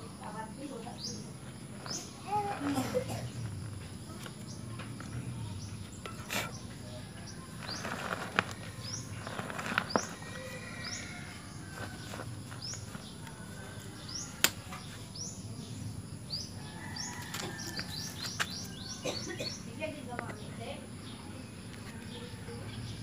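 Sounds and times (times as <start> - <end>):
high insect whine: 0.0 - 23.0
bird chirping: 0.1 - 23.0
hands rustling plant: 1.0 - 14.6.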